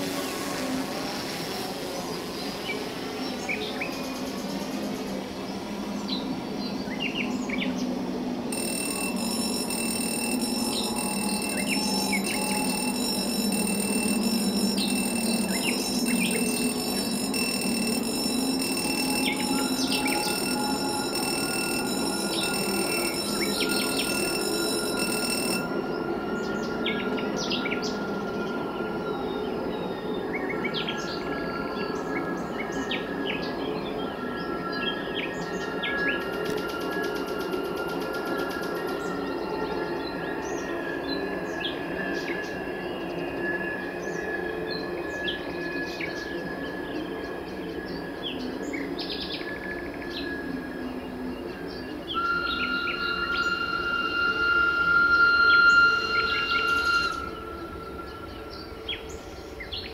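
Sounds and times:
faint high-pitched tones: 8.4s - 29.9s.

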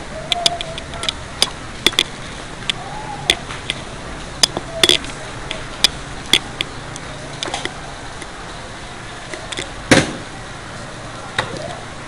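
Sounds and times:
sharp clicks and knocks: 0.3s - 3.8s, 4.4s - 8.3s.

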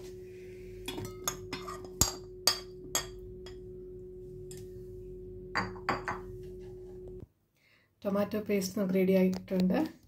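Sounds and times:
low humming tone: 0.0s - 7.2s
spoon clinking on steel: 0.9s - 3.6s.

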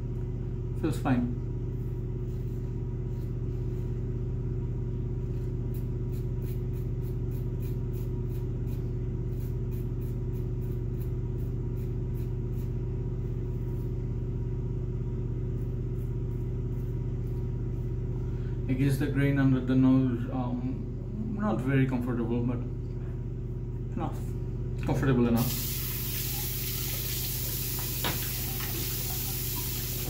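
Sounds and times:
steady low hum: 0.0s - 30.0s
razor scraping stubble: 5.3s - 12.8s.

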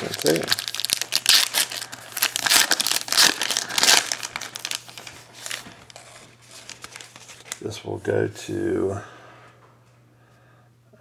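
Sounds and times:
plastic wrapper crinkling: 0.0s - 7.9s.

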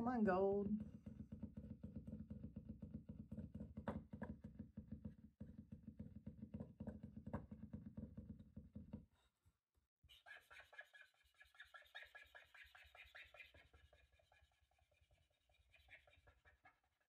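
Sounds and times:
paint marker tip tapping paper: 0.8s - 8.9s.

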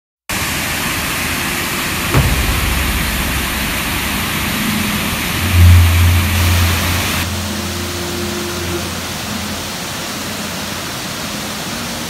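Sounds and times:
short low thump: 2.2s - 7.3s.

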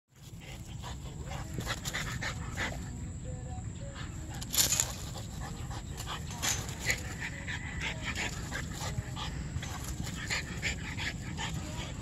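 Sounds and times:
dog breathing hard and snuffling: 4.9s - 12.0s.

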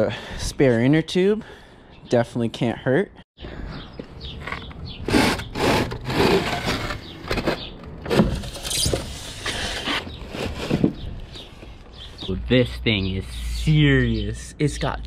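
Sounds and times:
scooter scraping against cardboard: 5.0s - 11.7s.

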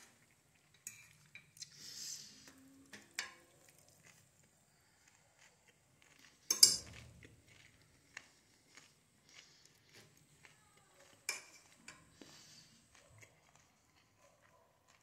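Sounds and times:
metal fork clinking on a dish: 0.8s - 1.6s, 6.5s - 7.0s, 11.3s - 12.0s.

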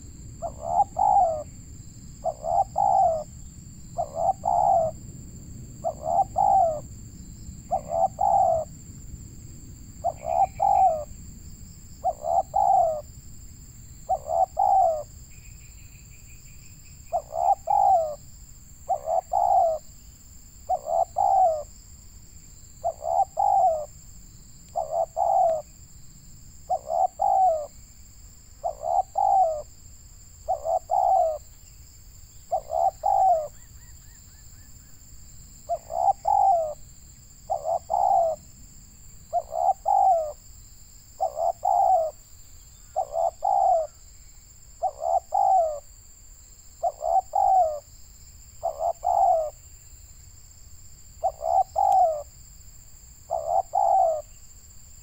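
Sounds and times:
dove cooing: 0.0s - 1.5s, 2.2s - 3.3s, 4.0s - 5.0s, 5.8s - 6.9s, 7.7s - 8.8s, 10.0s - 11.1s, 12.0s - 13.1s, 14.1s - 15.1s, 17.1s - 18.2s, 18.9s - 19.8s, 20.7s - 21.7s, 22.8s - 23.9s, 24.8s - 25.7s, 26.7s - 27.8s, 28.6s - 29.7s, 30.4s - 31.4s, 32.5s - 34.7s, 35.7s - 36.8s, 37.5s - 38.4s, 39.3s - 40.4s, 41.2s - 42.2s, 42.9s - 44.0s, 44.8s - 45.9s, 46.8s - 47.9s, 48.6s - 49.6s, 51.2s - 52.3s, 53.3s - 54.3s.

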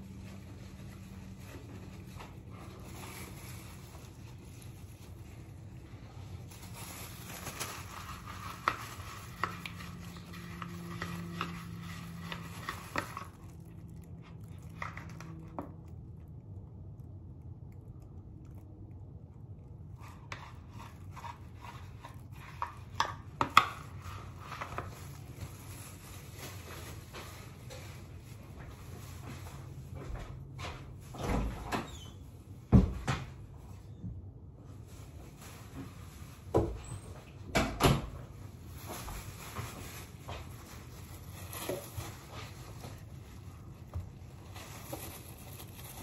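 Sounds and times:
utensil scraping plastic bowl: 7.1s - 13.7s, 19.9s - 25.5s.

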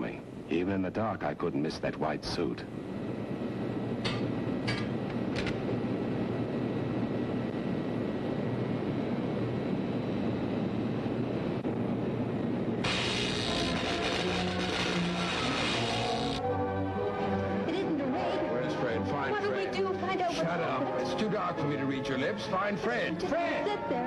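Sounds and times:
generator motor droning: 11.1s - 16.6s
music: 12.8s - 24.0s.

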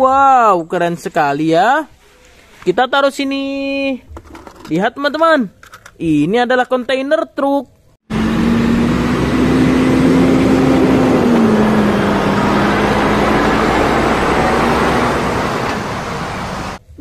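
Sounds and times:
lorry diesel engine hum: 8.1s - 16.8s
road noise: 8.1s - 16.9s.

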